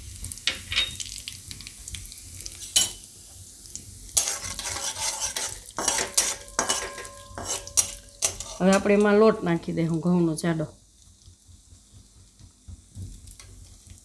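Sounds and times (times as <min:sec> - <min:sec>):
spices sizzling in hot oil: 0:00.0 - 0:14.0
metal spatula scraping a pan: 0:04.2 - 0:09.3.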